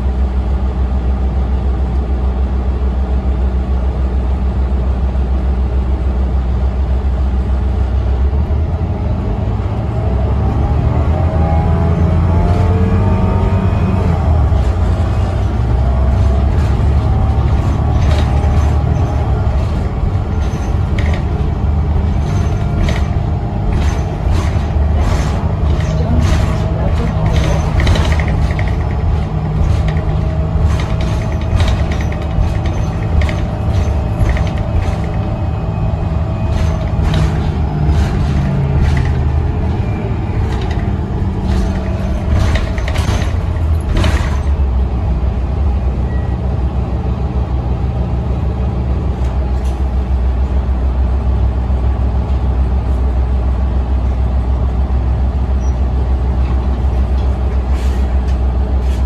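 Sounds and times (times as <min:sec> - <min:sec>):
bus engine and road drone: 0:00.0 - 0:59.0
cabin fittings rattling and creaking: 0:14.5 - 0:44.8.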